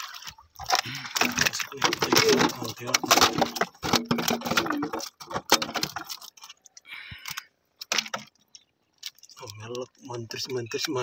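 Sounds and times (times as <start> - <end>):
clattering on bamboo floor: 0.7 - 6.3.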